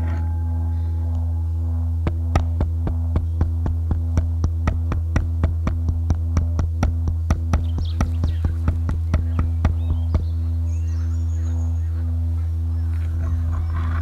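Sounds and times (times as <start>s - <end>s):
deep synthesizer drone: 0.0s - 14.0s
sharp clicking percussive hits: 2.0s - 10.4s.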